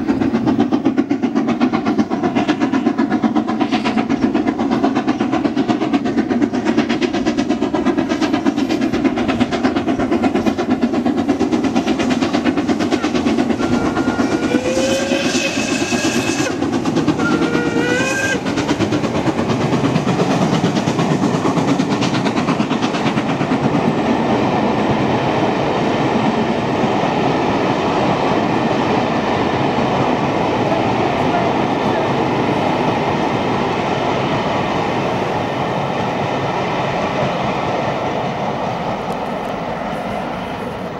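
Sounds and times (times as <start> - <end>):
rail clatter: 0.0 - 40.9
steam locomotive exhaust beats: 0.0 - 40.9
train coaches rumbling past: 0.0 - 40.9
steam whistle blasts: 13.0 - 16.6, 17.2 - 18.4.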